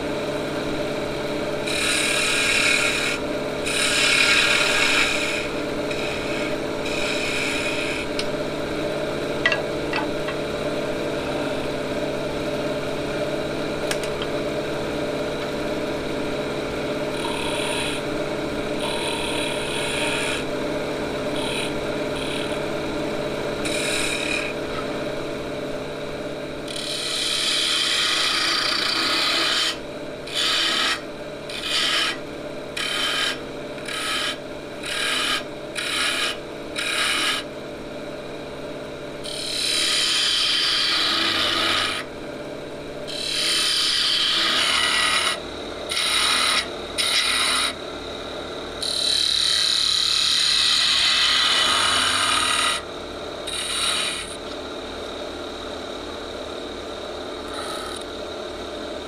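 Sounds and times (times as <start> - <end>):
wood lathe humming: 0.0 - 37.9, 39.1 - 55.5, 57.1 - 58.2
turning tool scraping wood: 1.6 - 8.3, 17.1 - 18.0, 18.8 - 20.5, 21.3 - 22.6, 23.6 - 24.8, 26.7 - 32.2, 32.8 - 37.4, 39.2 - 42.0, 43.1 - 47.7, 48.8 - 52.8, 53.5 - 54.4, 57.5 - 58.1.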